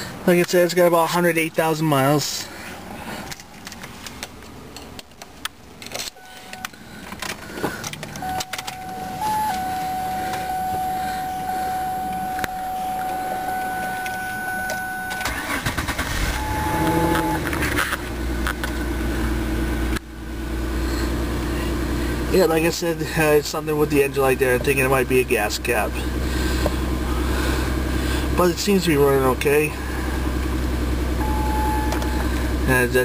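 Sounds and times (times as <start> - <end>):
car engine cranking and idling: 0.0 - 33.0
ignition key clicks: 3.4 - 15.7, 31.2 - 32.4
steady high whine: 6.2 - 18.4.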